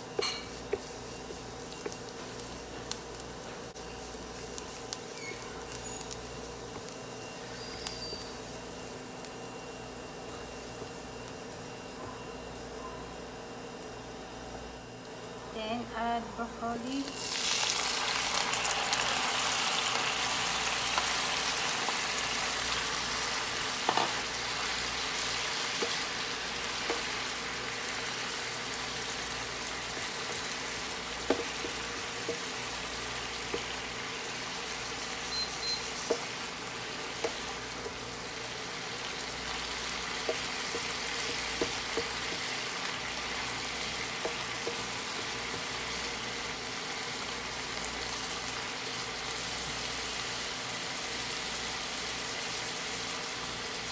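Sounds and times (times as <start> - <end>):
broccoli sizzling in hot oil: 0.0 - 9.6, 16.9 - 53.9
wooden spatula knocking on pan: 31.2 - 32.4.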